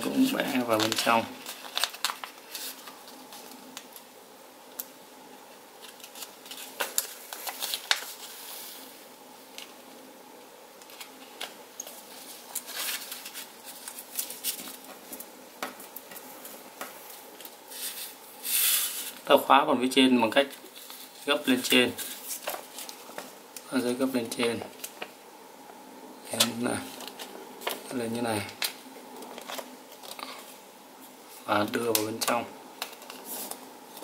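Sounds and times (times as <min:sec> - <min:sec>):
paper rustling and crinkling: 0:00.0 - 0:04.0, 0:05.8 - 0:08.8, 0:10.8 - 0:18.2, 0:20.4 - 0:25.2, 0:26.4 - 0:30.6, 0:31.3 - 0:34.0
faint steady hum: 0:00.0 - 0:34.0.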